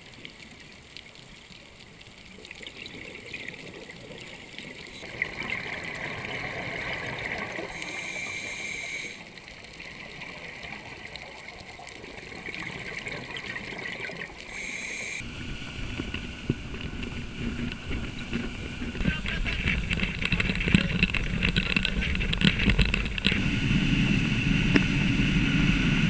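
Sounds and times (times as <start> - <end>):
thin whistling hiss: 7.6 - 9.2, 14.5 - 15.2
underwater regulator bubbling: 12.5 - 26.0
boat motor drone: 14.5 - 26.0
wind at speed: 15.2 - 26.0.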